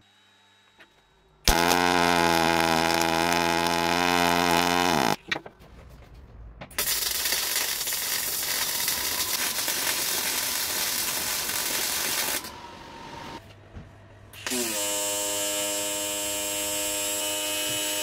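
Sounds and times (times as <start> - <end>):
welding arc buzzing: 1.4 - 5.2, 6.8 - 13.4
welding arc crackling sizzle: 1.5 - 5.2, 6.8 - 13.4.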